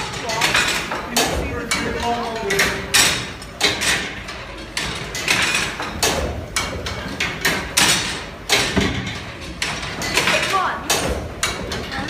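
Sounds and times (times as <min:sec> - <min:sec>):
steam engine clanking and knocking: 0:00.0 - 0:12.0.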